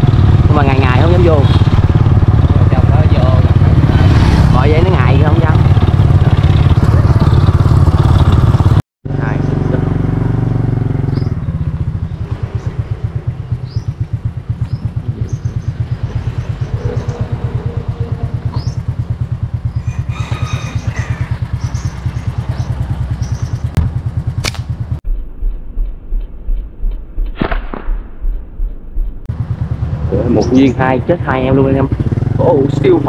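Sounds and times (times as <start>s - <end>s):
motorbike engine idling: 0.0s - 26.6s, 28.3s - 33.0s
small birds chirping: 11.0s - 24.3s, 29.5s - 33.0s
slingshot snapping: 24.4s - 24.8s.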